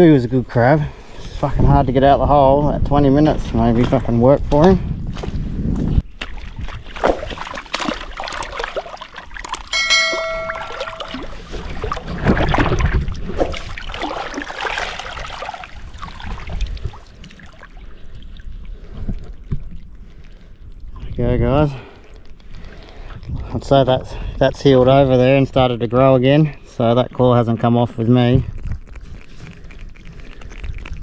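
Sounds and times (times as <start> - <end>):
shallow water splashing: 6.1 - 21.3
metallic ding: 9.7 - 11.4.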